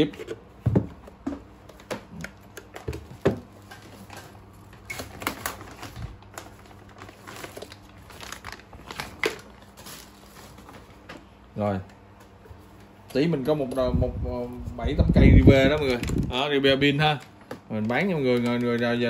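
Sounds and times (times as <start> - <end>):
crinkling: 1.7 - 11.1.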